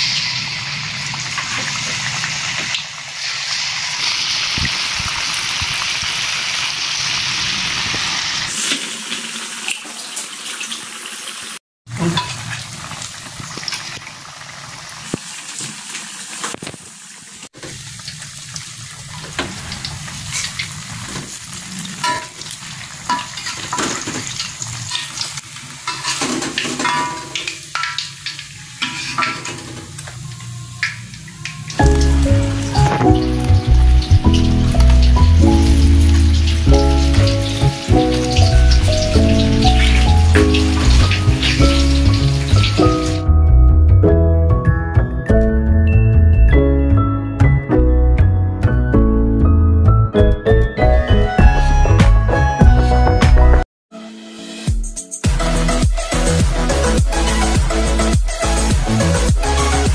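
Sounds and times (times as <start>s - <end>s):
food sizzling in hot oil: 0.0s - 43.2s
metal spatula scraping wok: 25.9s - 27.4s, 28.7s - 29.9s.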